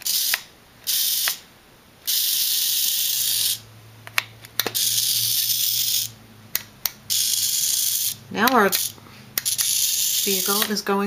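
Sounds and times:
toy robot motors whirring: 0.0s - 1.4s, 2.0s - 3.6s, 4.6s - 10.9s
sharp clicks: 8.4s - 10.8s.

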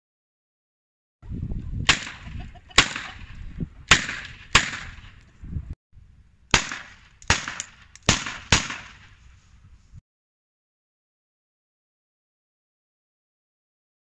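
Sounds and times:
blank pistol shots: 1.8s - 3.3s, 3.9s - 5.2s, 6.5s - 9.1s.

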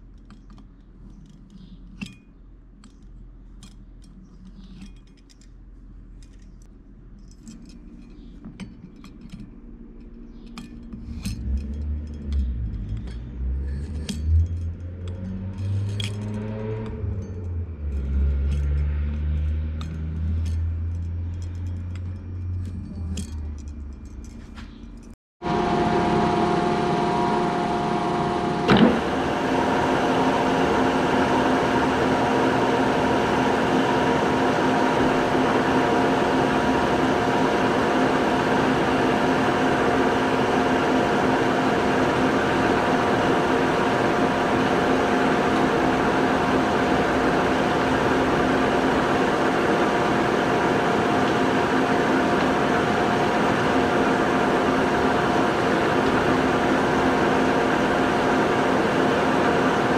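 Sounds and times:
milling machine cutting metal: 25.4s - 59.9s.

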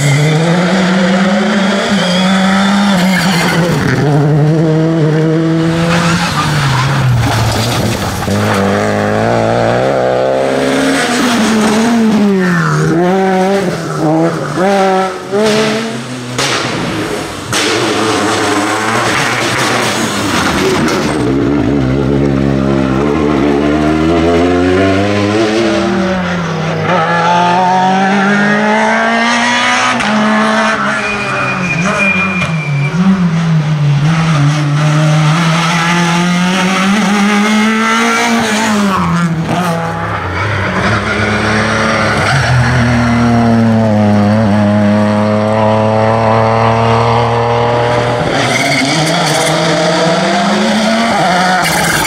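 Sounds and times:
rally car engines revving: 0.0s - 52.0s.

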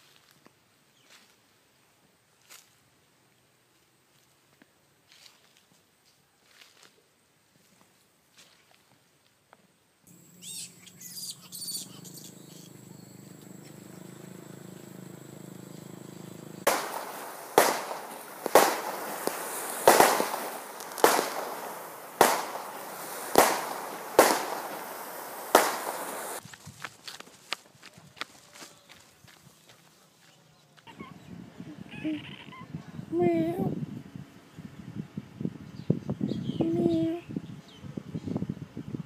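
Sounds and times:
firework crackles and chirps: 10.1s - 26.5s
firework bangs with echo: 16.6s - 26.4s.

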